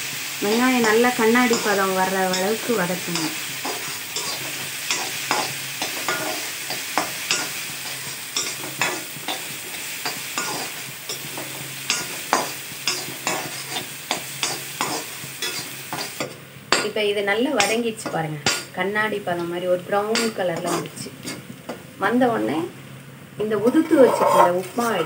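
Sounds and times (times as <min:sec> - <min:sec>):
shallots sizzling in hot oil: 0:00.0 - 0:25.0
spatula scraping and clicking on pan: 0:03.2 - 0:16.3, 0:23.8 - 0:25.0.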